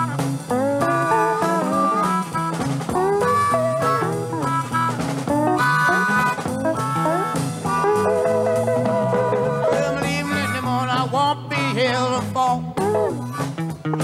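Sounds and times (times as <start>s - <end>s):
drums: 0.0s - 14.0s
electric slide guitar: 0.0s - 14.0s
man singing: 9.3s - 13.4s.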